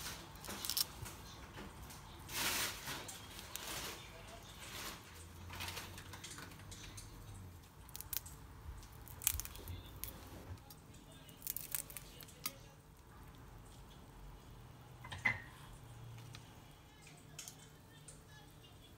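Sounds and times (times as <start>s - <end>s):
shrimp shell crackling and tearing: 0.2s - 1.2s, 2.5s - 4.0s, 7.6s - 12.6s.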